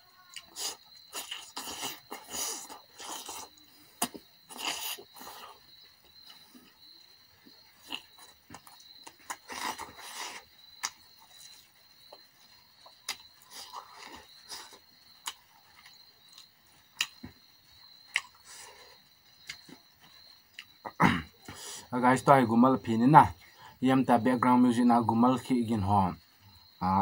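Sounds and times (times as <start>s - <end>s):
chewing and mouth smacking: 0.3s - 7.0s, 7.7s - 17.4s, 18.0s - 21.6s.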